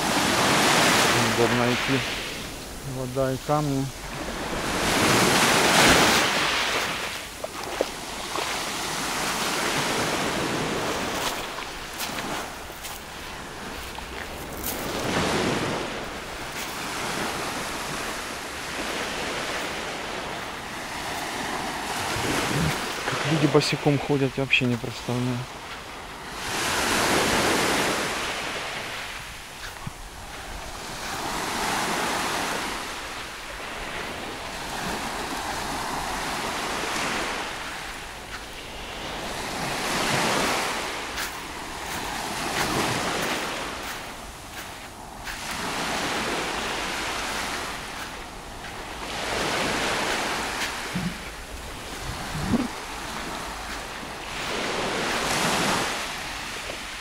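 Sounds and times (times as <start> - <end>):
waves washing up pebbly shore: 0.0 - 57.0.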